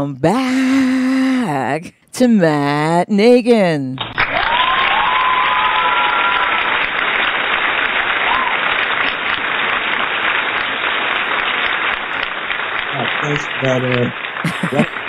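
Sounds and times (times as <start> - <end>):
audience applause: 4.0 - 15.0.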